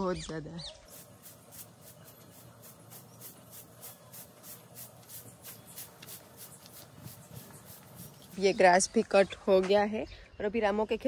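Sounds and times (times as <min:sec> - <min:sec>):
broom sweeping dirt: 0:00.6 - 0:08.6.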